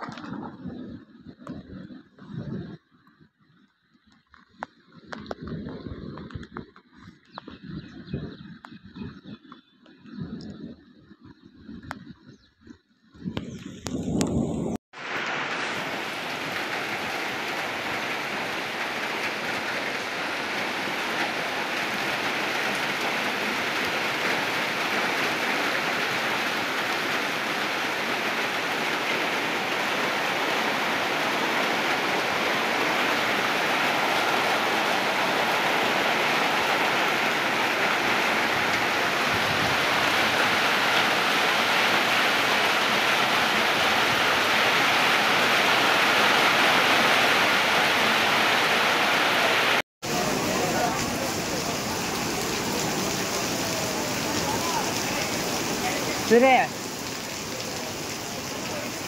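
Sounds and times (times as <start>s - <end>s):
heavy rain falling: 13.5s - 59.0s.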